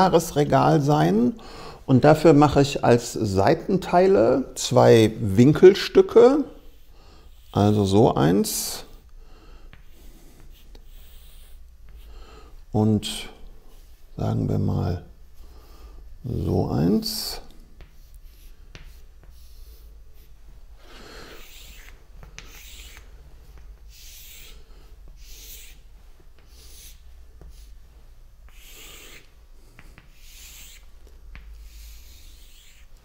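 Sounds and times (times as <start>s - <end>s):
chalk scratching on blackboard: 3.8s - 9.0s, 9.7s - 12.2s, 16.4s - 33.0s
chalk tapping board: 9.7s - 12.1s, 17.0s - 20.3s, 21.2s - 27.8s, 28.4s - 33.0s.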